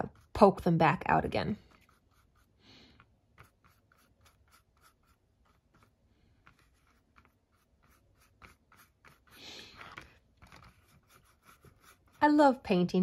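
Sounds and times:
paintbrush scratching on cardboard: 0:00.0 - 0:13.0.

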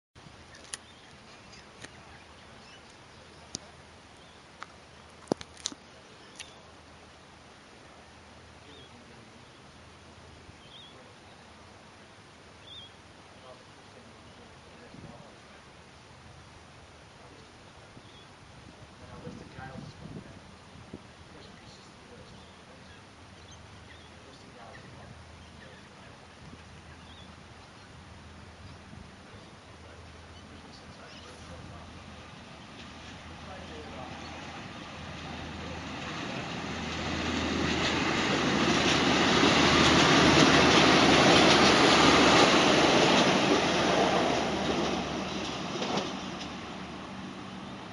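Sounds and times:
background hiss: 0:00.2 - 0:47.9
low outdoor background hum: 0:00.2 - 0:47.9
birds chirping faintly: 0:00.3 - 0:35.8
sharp clicks: 0:00.6 - 0:02.0
faint bird chirps: 0:10.5 - 0:11.5, 0:12.5 - 0:14.6.

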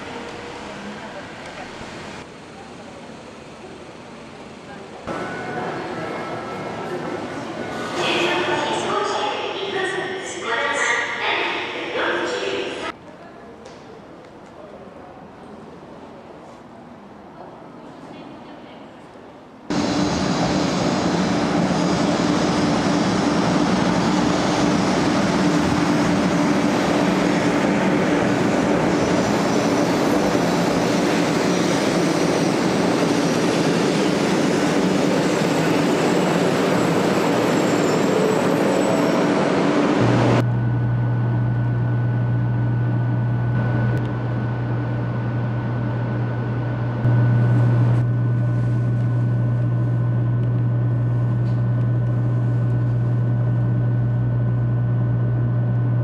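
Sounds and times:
low hum inside train car: 0:00.0 - 0:31.2, 0:37.8 - 0:56.0
train rushing past: 0:05.0 - 0:13.0, 0:19.7 - 0:40.5.

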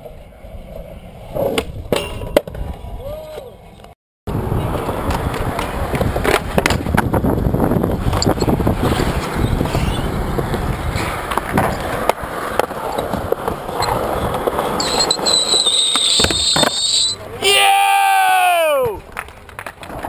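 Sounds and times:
skateboard wheels rolling on concrete: 0:00.0 - 0:20.0
skateboard clacks popping and landing: 0:04.7 - 0:09.4, 0:10.3 - 0:14.8, 0:19.0 - 0:20.0.

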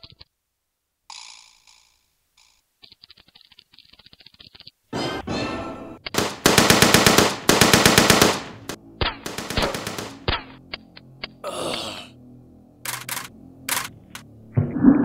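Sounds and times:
fast clicking: 0:02.8 - 0:04.8
automatic machine gun fire: 0:06.2 - 0:10.3.

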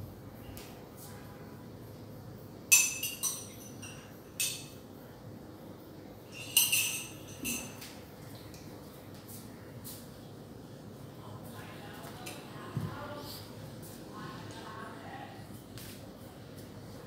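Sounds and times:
sharp ringing clinks: 0:02.7 - 0:04.8, 0:06.3 - 0:07.8.

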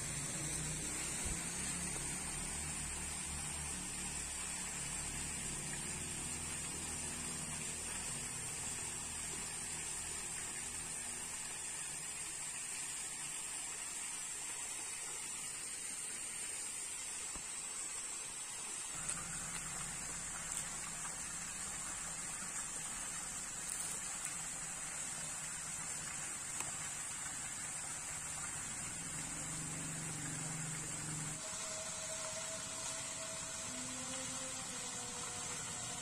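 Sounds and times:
low steady hum: 0:18.7 - 0:36.0.

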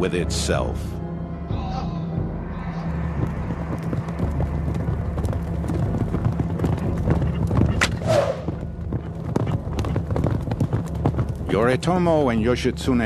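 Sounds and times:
horse hooves galloping: 0:02.9 - 0:13.0.

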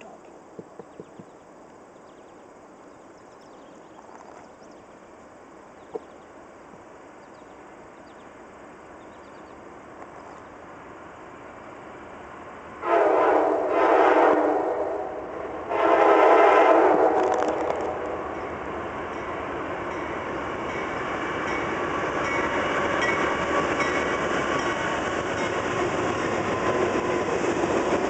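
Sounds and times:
train rumble: 0:00.0 - 0:28.0
locomotive air horn chord: 0:12.8 - 0:17.2.

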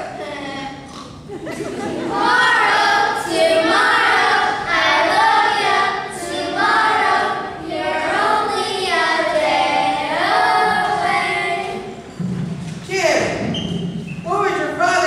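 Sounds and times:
children singing in chorus: 0:01.8 - 0:12.1.

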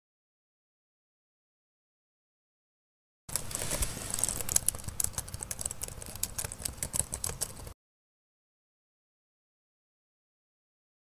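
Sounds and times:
fast typing on laptop keyboard: 0:03.3 - 0:07.8.

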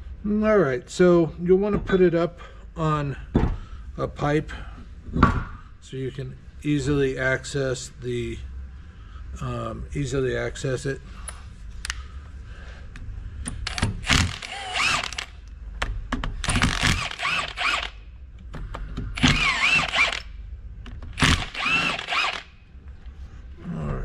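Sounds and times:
cordless impact tool bursts: 0:13.6 - 0:15.4, 0:16.4 - 0:18.0, 0:19.2 - 0:20.4, 0:21.2 - 0:22.6.

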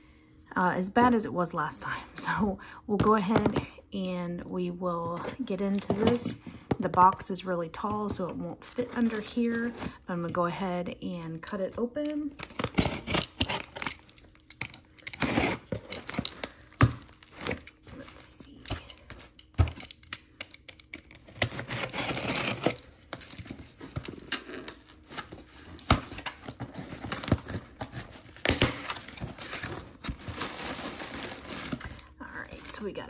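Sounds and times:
packing tape tearing: 0:12.0 - 0:32.0.

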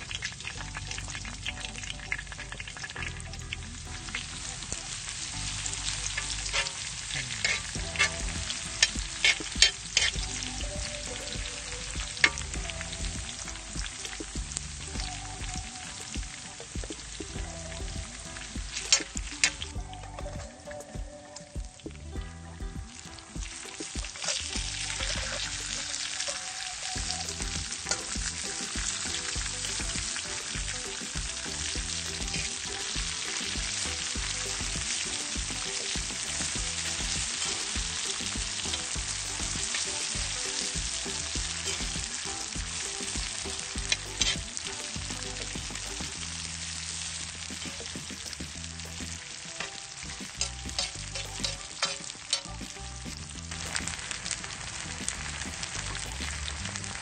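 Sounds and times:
food sizzling in oil: 0:00.0 - 0:21.9, 0:22.8 - 0:57.0
metal spatula scraping wok: 0:03.9 - 0:10.4, 0:23.6 - 0:55.2.

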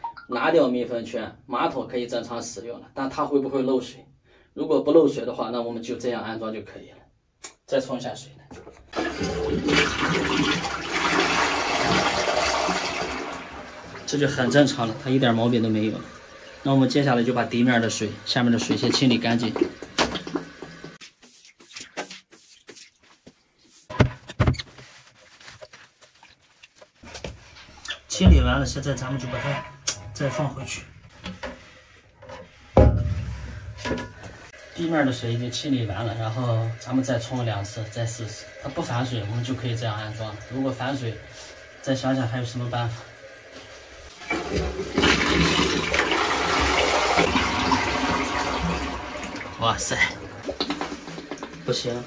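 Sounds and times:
toilet flushing: 0:08.9 - 0:21.0, 0:32.8 - 0:52.0
brush scraping wet tiled floor: 0:20.9 - 0:23.9.

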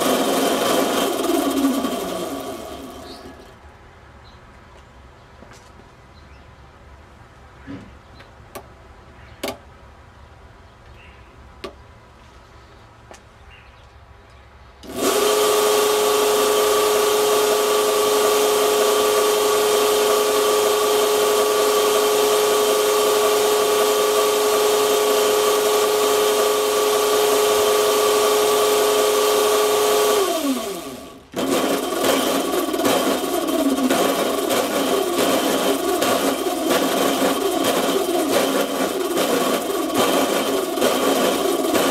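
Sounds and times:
belt drive motor whine: 0:00.0 - 0:03.6, 0:14.8 - 0:41.9.

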